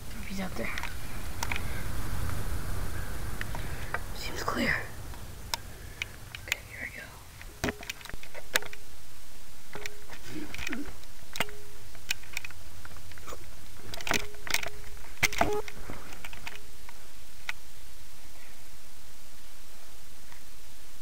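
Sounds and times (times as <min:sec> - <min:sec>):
steady hiss: 0:00.0 - 0:21.0.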